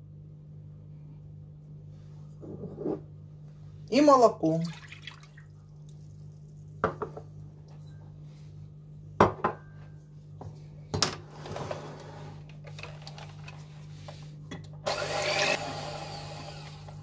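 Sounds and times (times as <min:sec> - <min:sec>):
electric hand mixer beating: 0:14.9 - 0:17.0.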